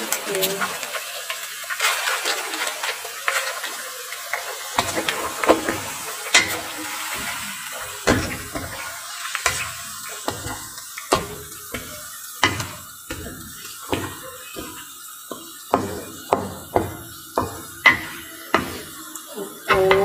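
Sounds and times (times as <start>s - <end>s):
noodles sizzling: 0.0s - 20.0s
wooden spatula knocking against wok: 10.3s - 19.0s.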